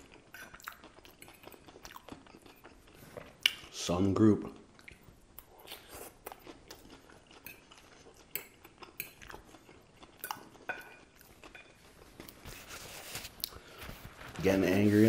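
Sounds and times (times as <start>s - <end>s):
chewing crisp lettuce: 0.0s - 3.8s.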